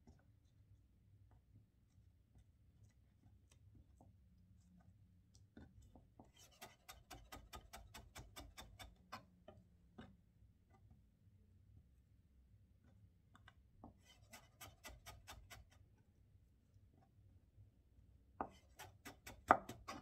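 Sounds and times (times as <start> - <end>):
knife cutting on wooden board: 6.2 - 9.3, 13.9 - 15.8, 18.4 - 20.0.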